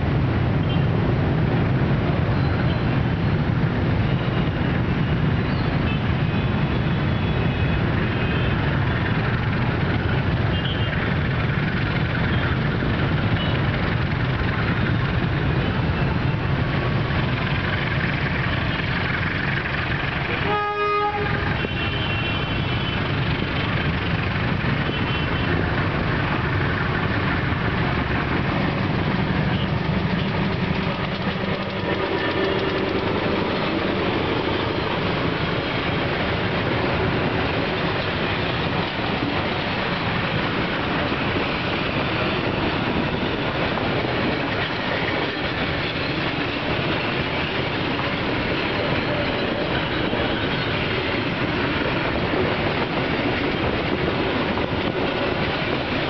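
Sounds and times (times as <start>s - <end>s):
diesel train rumbling past: 0.0s - 56.0s
locomotive horn blast: 20.3s - 23.0s, 31.4s - 33.5s.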